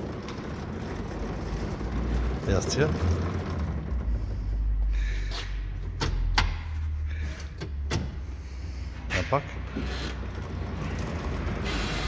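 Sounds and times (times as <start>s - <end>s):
low steady rumble: 0.0s - 9.1s.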